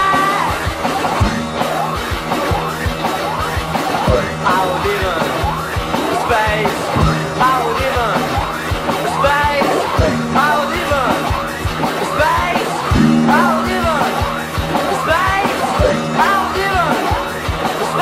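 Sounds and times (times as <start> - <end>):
swooping pitch glides: 3.1 - 18.0
low drone tones: 9.8 - 18.0
low thumps: 12.9 - 15.1.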